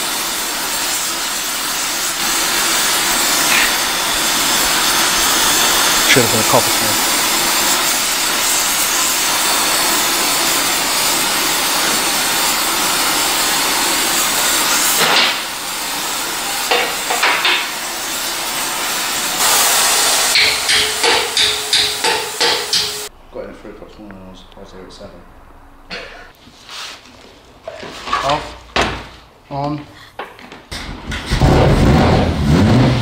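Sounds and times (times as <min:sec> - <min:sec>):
gas torch hissing: 0:00.0 - 0:23.1.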